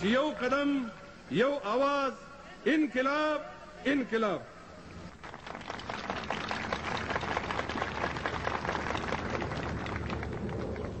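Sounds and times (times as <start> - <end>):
crowd applauding: 5.2 - 11.0.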